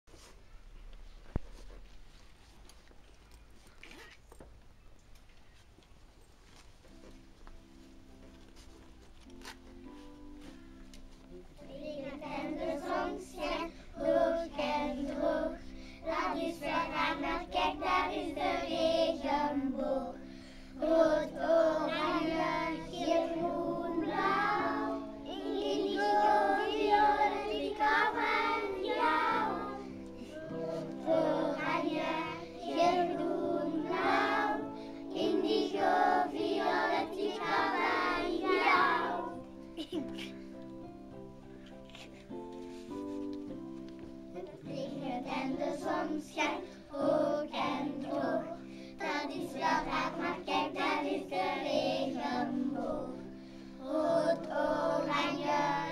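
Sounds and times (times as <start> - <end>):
children singing in unison: 11.7 - 20.2, 20.8 - 39.4, 44.7 - 55.9.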